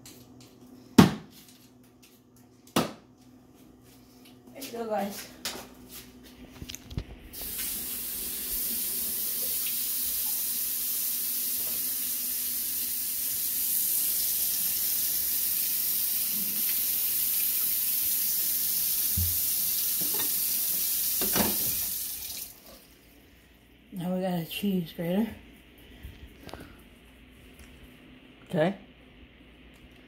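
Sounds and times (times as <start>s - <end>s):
tap water running into sink: 7.3s - 22.8s.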